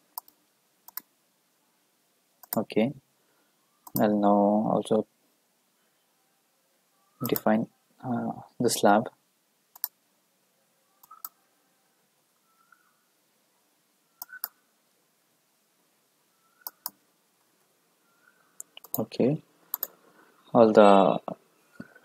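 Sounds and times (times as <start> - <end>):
computer mouse clicks: 0.1 - 1.1, 2.4 - 2.6, 3.8 - 4.1, 7.2 - 7.5, 9.7 - 10.0, 11.0 - 11.4, 14.2 - 14.6, 16.6 - 17.0, 18.6 - 19.0, 19.7 - 20.0.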